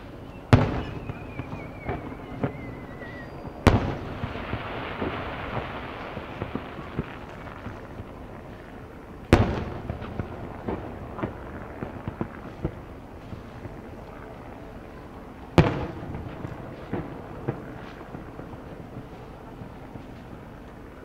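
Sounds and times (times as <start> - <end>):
hissing crackle: 0.0 - 21.0
firework shells bursting: 0.5 - 13.7.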